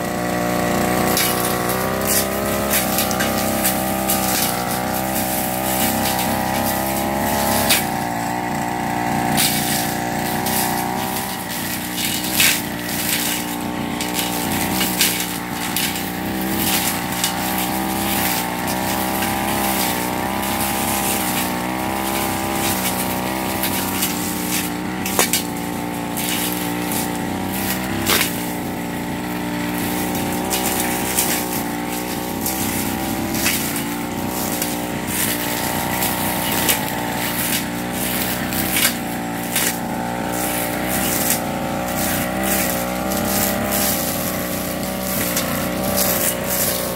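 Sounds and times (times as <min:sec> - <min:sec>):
brush cutter engine running: 0:00.0 - 0:46.9.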